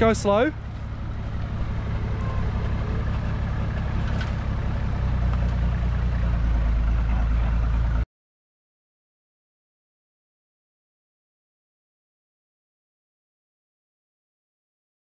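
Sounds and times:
engine running at low revs: 0.0s - 8.0s.

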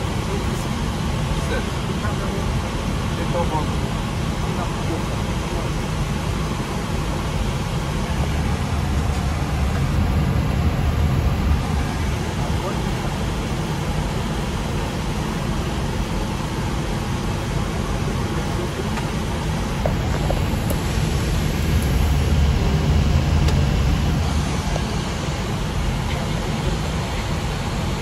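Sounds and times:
air-conditioning hiss: 0.0s - 28.0s
aircraft engine rumble: 0.0s - 28.0s.

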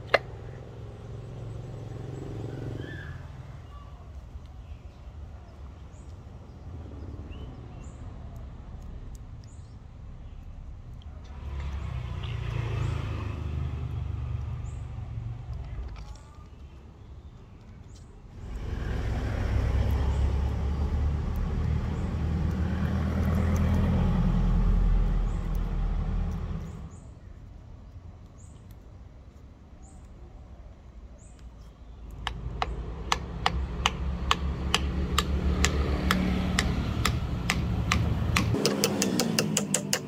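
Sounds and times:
regular sharp ticks: 17.6s - 28.9s, 31.4s - 40.0s.

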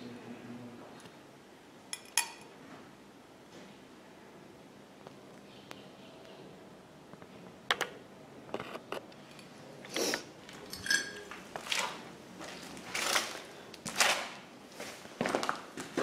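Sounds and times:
metallic clinks and knocks: 10.6s - 11.3s
footsteps crunching on debris: 11.3s - 16.0s.

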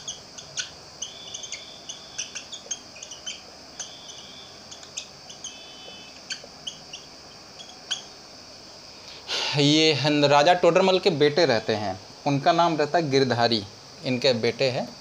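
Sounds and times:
marker squeaking on whiteboard: 0.0s - 7.0s.

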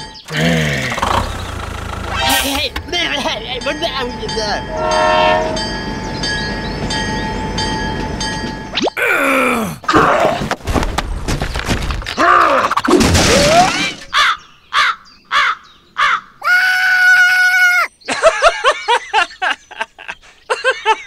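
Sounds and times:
cartoon sound effects: 2.1s - 2.7s.

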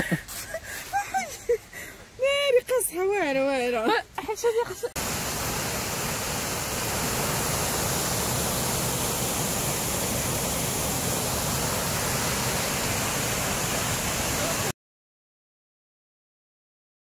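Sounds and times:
waterfall rushing into pool: 4.8s - 14.8s.

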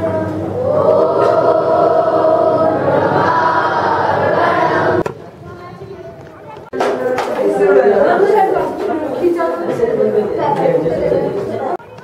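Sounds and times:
group singing in unison: 0.6s - 5.1s.

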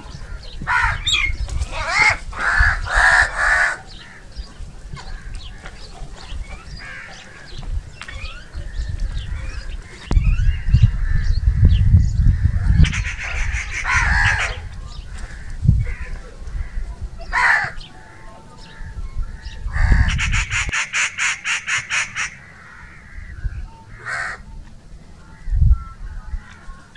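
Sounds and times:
crow cawing: 0.1s - 5.7s, 6.8s - 7.6s, 12.3s - 24.5s.

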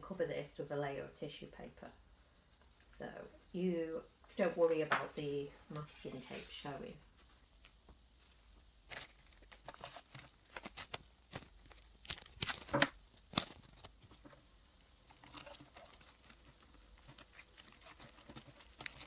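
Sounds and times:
foil crinkling: 7.3s - 19.0s
masking tape tearing: 8.9s - 14.2s.

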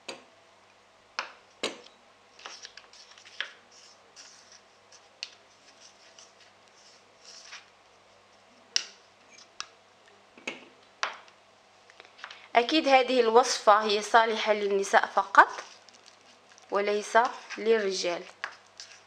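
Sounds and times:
spoon scraping plastic bowl: 15.2s - 19.0s.

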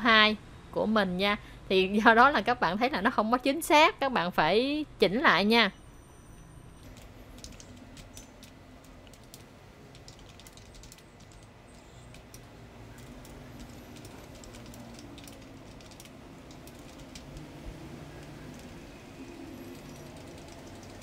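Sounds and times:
low background noise: 0.0s - 21.0s
faint keyboard typing: 6.8s - 21.0s.

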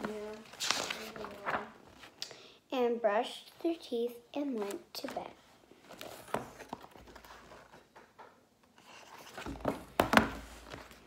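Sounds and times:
book pages turning: 0.0s - 2.2s, 5.8s - 8.2s, 8.8s - 11.0s.

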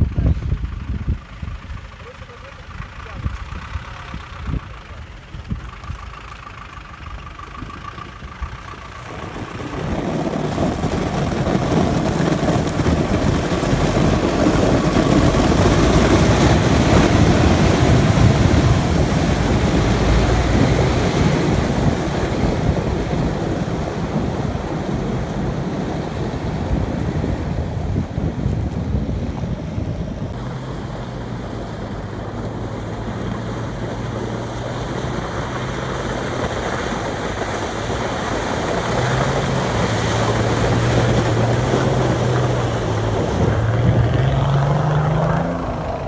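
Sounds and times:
truck engine under load: 0.0s - 46.0s
heavy splashing through slush: 8.9s - 29.1s, 30.3s - 46.0s.

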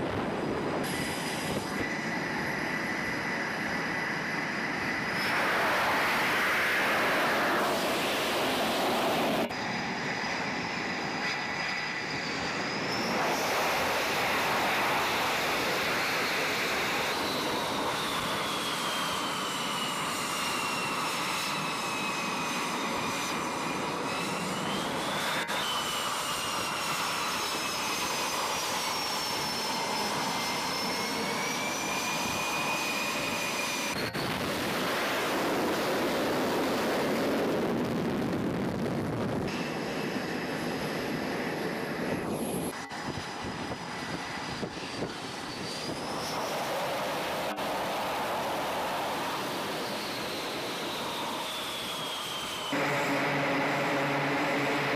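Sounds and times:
jet engines whining at high power: 0.0s - 54.9s.

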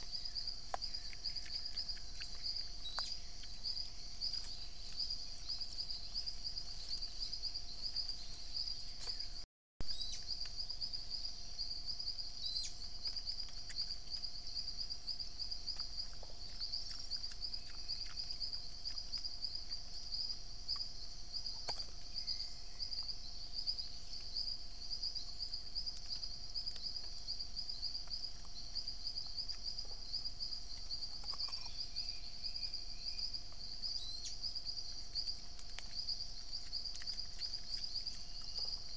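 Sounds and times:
faint steady hum: 0.0s - 38.9s
insect chorus trilling: 0.0s - 38.9s.

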